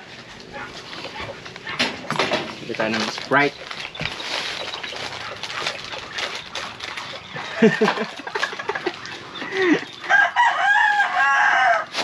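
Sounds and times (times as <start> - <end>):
rooster crowing: 9.6 - 12.0.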